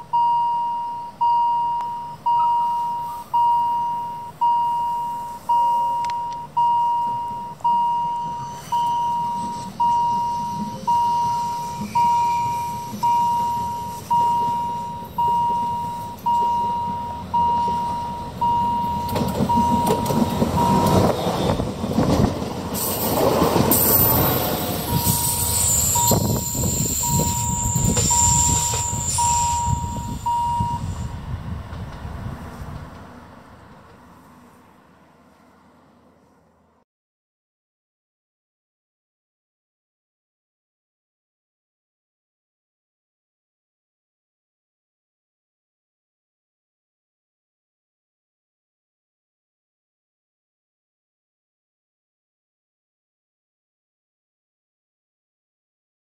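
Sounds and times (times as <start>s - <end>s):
train high whine: 0.8s - 36.8s
electric train rumbling past: 6.6s - 36.8s
level crossing bell dinging: 27.0s - 30.9s.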